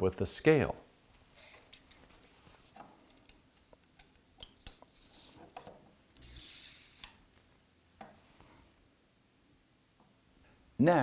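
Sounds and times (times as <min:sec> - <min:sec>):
faint scraping rub: 0:04.9 - 0:05.6, 0:06.2 - 0:07.2.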